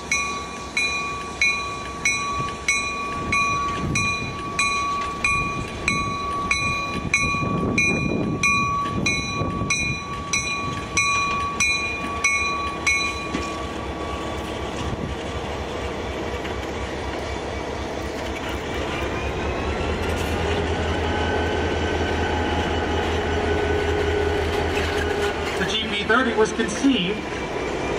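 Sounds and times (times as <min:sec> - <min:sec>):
locomotive bell ringing: 0:00.0 - 0:14.5
diesel locomotive engine rumble: 0:00.0 - 0:27.9.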